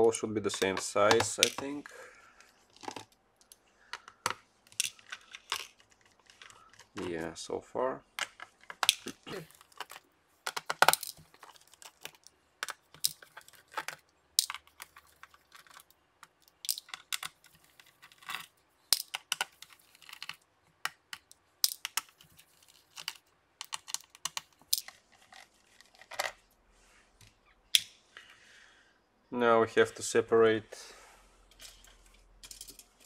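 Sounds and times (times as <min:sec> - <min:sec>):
tiny screws being set down: 0:08.2 - 0:26.4.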